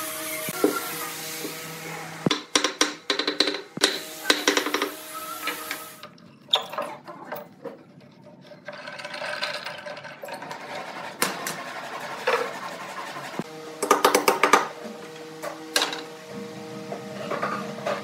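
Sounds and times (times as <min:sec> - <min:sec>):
hand tools knocking on wood: 0:02.3 - 0:05.7, 0:13.8 - 0:14.8.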